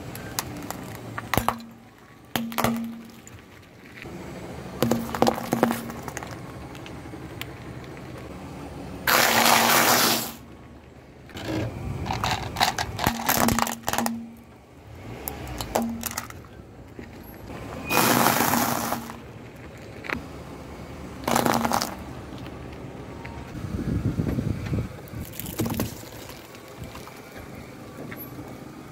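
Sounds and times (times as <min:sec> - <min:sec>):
tyre crushing objects on asphalt: 0:00.1 - 0:04.1, 0:04.7 - 0:07.0, 0:09.0 - 0:10.4, 0:11.3 - 0:14.6, 0:15.6 - 0:20.2, 0:21.2 - 0:22.1, 0:25.1 - 0:27.5.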